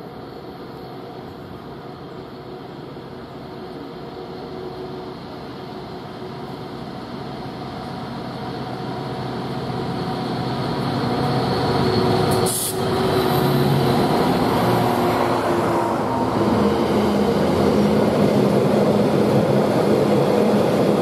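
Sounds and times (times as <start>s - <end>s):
diesel locomotive engine under load: 0.0s - 21.0s
brief sharp hiss: 12.3s - 12.9s.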